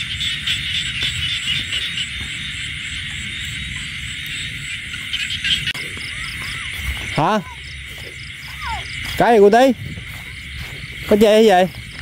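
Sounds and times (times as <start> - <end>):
frogs and insects chirring: 0.0 - 12.0
footsteps through dry grass: 5.7 - 12.0.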